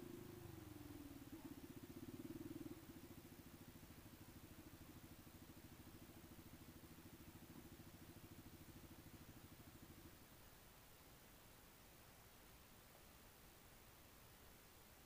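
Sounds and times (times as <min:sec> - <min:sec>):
engine idling: 0:00.0 - 0:10.2.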